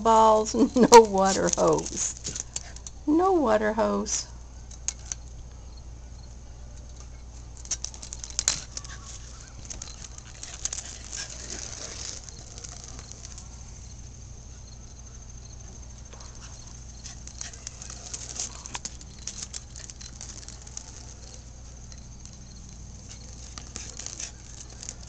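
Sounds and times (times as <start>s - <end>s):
rubber hose scraping on concrete: 0.0s - 2.9s, 7.4s - 13.8s, 16.1s - 25.0s
puppy pattering: 0.1s - 2.9s, 7.0s - 13.7s, 16.0s - 25.0s.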